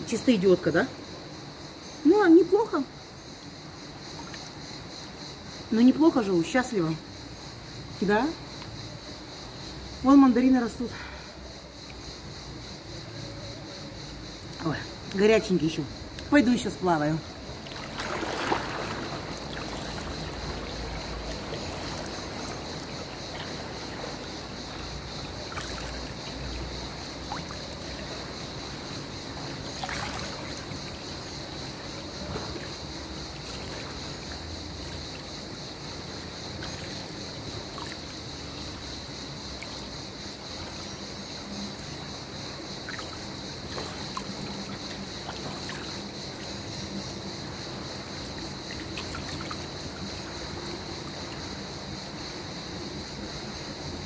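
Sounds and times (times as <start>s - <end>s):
water lapping at pool edge: 3.7s - 8.8s, 14.4s - 52.5s
swimmer splash: 17.6s - 46.9s, 47.7s - 51.4s.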